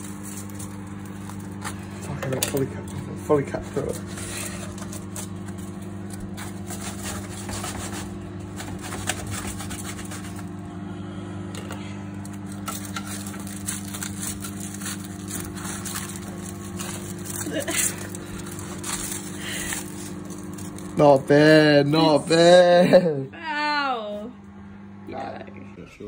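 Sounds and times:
crackles and scrapes of foil: 0:00.0 - 0:10.8, 0:11.6 - 0:23.0
low hum: 0:00.0 - 0:26.0
knife cutting pastry crust: 0:03.5 - 0:10.6, 0:12.4 - 0:20.9.

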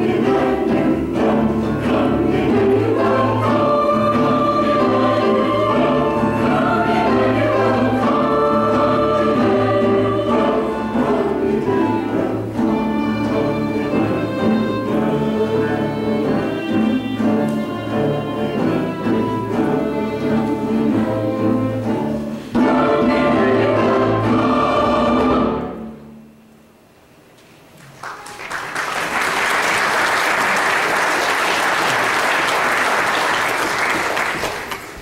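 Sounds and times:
church choir singing: 0:00.0 - 0:26.2
congregation applauding: 0:27.7 - 0:35.0.

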